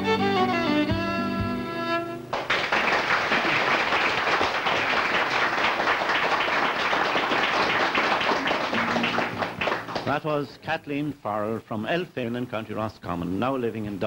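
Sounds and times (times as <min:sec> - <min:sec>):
music: 0:00.0 - 0:02.5, 0:08.4 - 0:10.1
audience applauding: 0:02.3 - 0:10.3.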